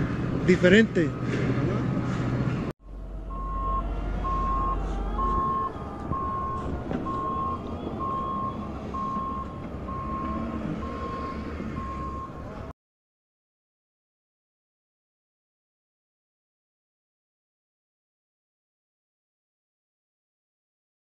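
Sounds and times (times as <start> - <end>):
engine low rumble: 0.0 - 12.7
reversing alarm beeping: 3.2 - 12.6.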